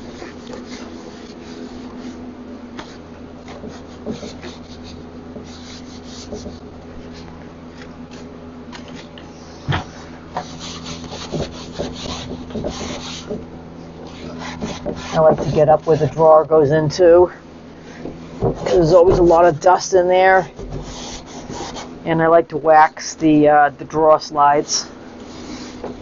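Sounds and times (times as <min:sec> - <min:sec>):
cloth rag rubbing wood: 0:00.0 - 0:08.3, 0:08.9 - 0:13.4, 0:14.0 - 0:16.5, 0:17.8 - 0:22.0, 0:24.6 - 0:26.0
steady low hum: 0:00.0 - 0:26.0
knuckle rapping on wood: 0:02.8 - 0:05.6, 0:06.2 - 0:06.6, 0:09.7 - 0:13.5.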